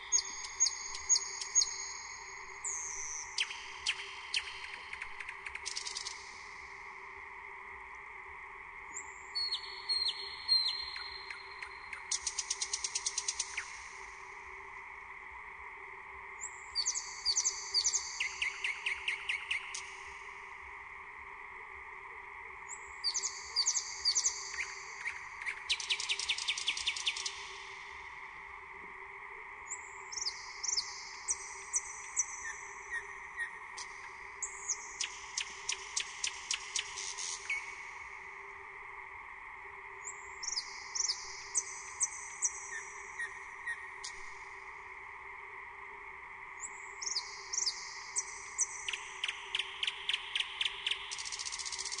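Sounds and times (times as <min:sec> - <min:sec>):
songbird singing: 0:00.0 - 0:06.6, 0:08.9 - 0:14.2, 0:16.4 - 0:20.3, 0:22.6 - 0:28.0, 0:29.6 - 0:38.4, 0:40.0 - 0:44.5, 0:46.6 - 0:52.0.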